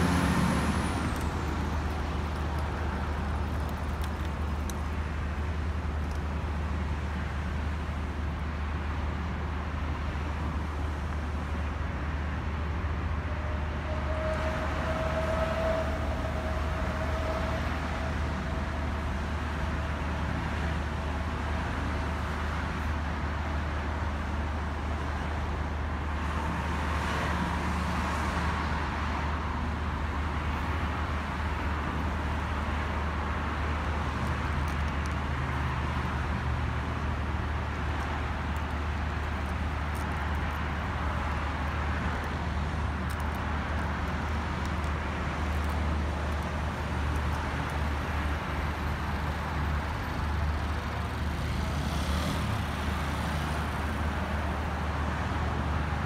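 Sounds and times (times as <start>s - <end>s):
distant road traffic rumble: 0.0s - 56.0s.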